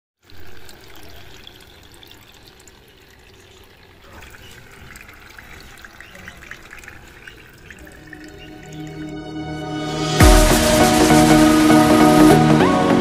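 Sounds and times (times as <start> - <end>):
water trickling onto pebbles: 0.2 - 9.2.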